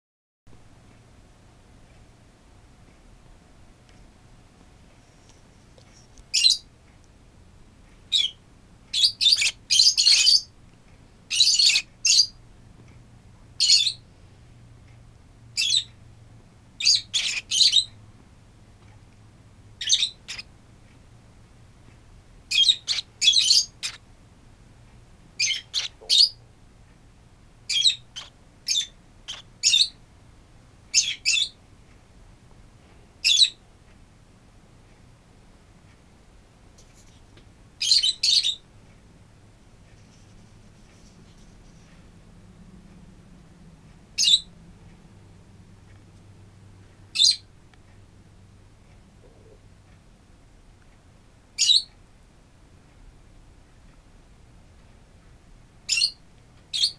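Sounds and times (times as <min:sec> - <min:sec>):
baby birds shrill chirping: 0:06.3 - 0:06.6, 0:08.1 - 0:10.5, 0:11.3 - 0:12.4, 0:13.6 - 0:14.0, 0:16.8 - 0:17.9, 0:19.8 - 0:20.5, 0:22.5 - 0:24.0, 0:25.4 - 0:26.4, 0:27.7 - 0:30.0, 0:30.9 - 0:31.6, 0:37.8 - 0:38.6, 0:44.2 - 0:44.5, 0:47.2 - 0:47.4, 0:51.6 - 0:51.9, 0:55.9 - 0:56.9.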